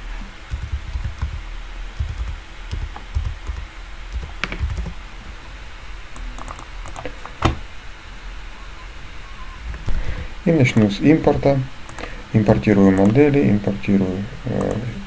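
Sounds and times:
computer keyboard typing: 0.5s - 1.4s, 2.0s - 5.0s, 6.2s - 7.6s, 11.9s - 13.3s.

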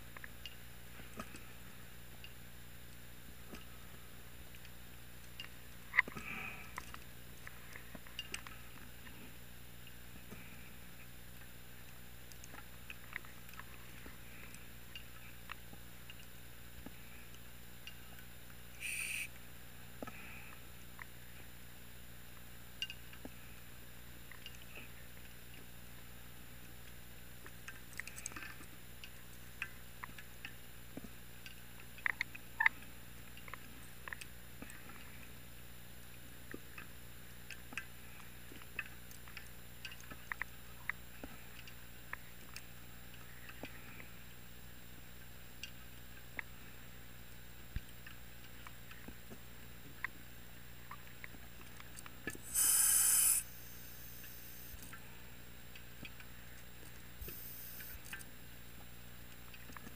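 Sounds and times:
steady low hum: 0.0s - 22.6s, 50.5s - 59.9s
brief hiss: 18.8s - 19.3s, 52.4s - 54.8s, 57.2s - 58.0s.

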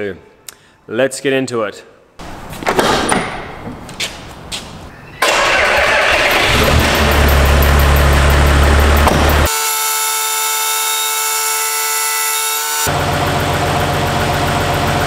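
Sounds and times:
truck engine cranking and idling: 2.2s - 9.5s, 12.9s - 15.0s
knocks and clicks: 8.9s - 9.5s.

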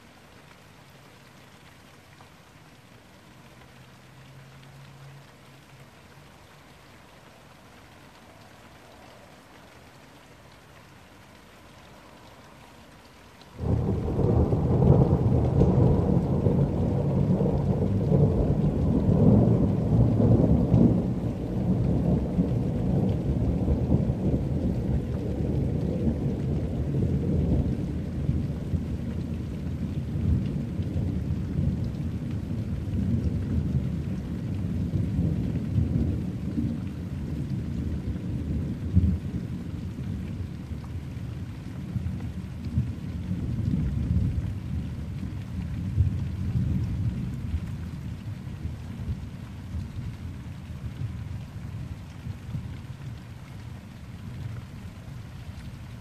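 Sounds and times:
light rain: 0.0s - 56.0s
thunder rumbling: 13.6s - 40.7s.

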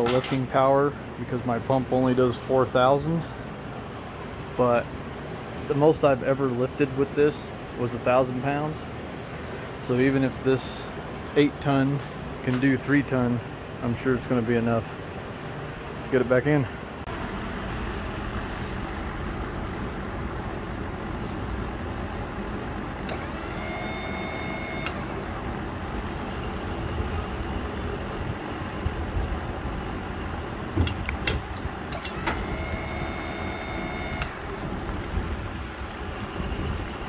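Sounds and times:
electric hydraulic pump whining: 22.9s - 29.2s, 31.8s - 37.0s
sharp clicks: 24.5s - 25.2s
steady low rumble: 34.3s - 37.0s.

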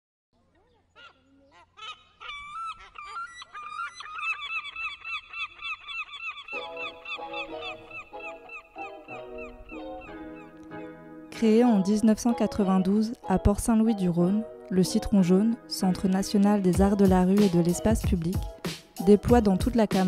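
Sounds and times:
lower bird calls: 0.7s - 10.6s.

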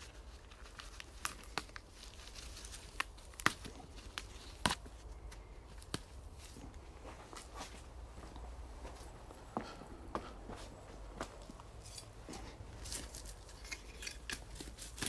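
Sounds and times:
leaves and stems rustling: 0.0s - 7.8s, 11.8s - 15.0s
plant stems snapping: 0.5s - 6.2s.

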